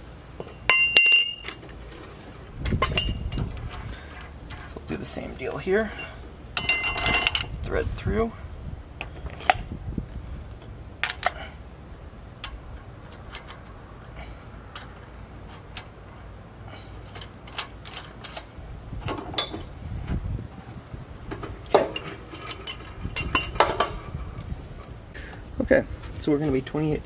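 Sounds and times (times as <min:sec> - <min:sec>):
small metal clicks and clinks: 0:17.1 - 0:18.5.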